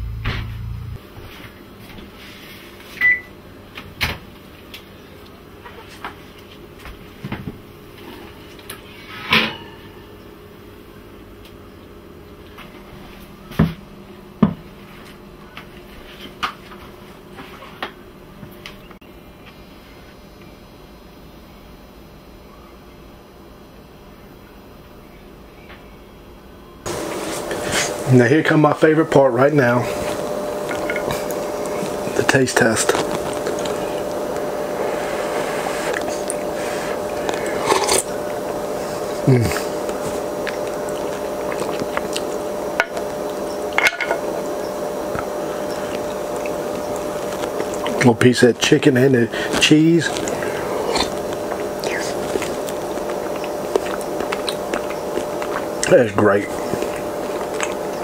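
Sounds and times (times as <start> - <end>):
background hum and hiss: 0.0 - 58.0
slurp of soup from spoon: 34.7 - 38.2, 49.3 - 55.8.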